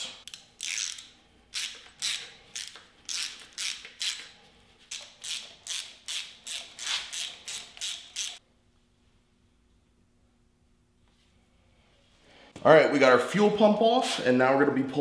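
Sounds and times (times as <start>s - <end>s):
ratchet wrench clicking: 0.0s - 4.3s, 4.9s - 8.4s.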